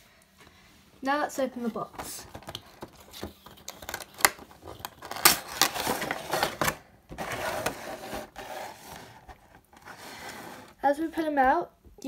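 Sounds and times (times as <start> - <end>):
crinkling plastic: 1.6 - 10.8.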